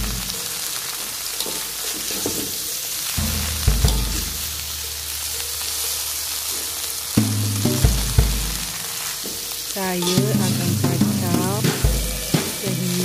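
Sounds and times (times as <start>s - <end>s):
leaves sizzling in hot oil: 0.0s - 13.0s
spatula knocking against wok: 7.2s - 9.4s.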